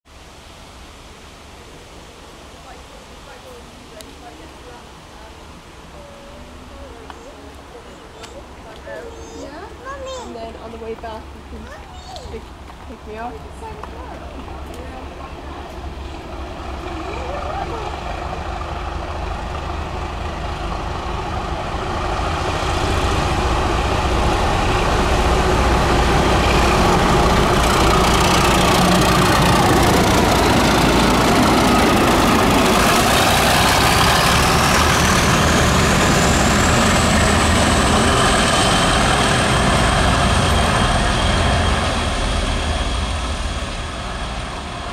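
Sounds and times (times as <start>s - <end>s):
diesel locomotive engines thrashing: 15.7s - 44.9s.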